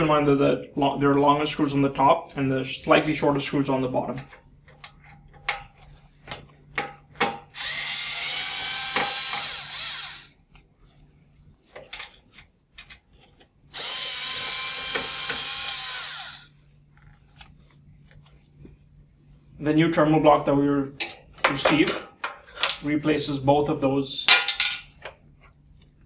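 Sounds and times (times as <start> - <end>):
electric screwdriver motor whine: 7.5 - 10.3, 13.7 - 16.5.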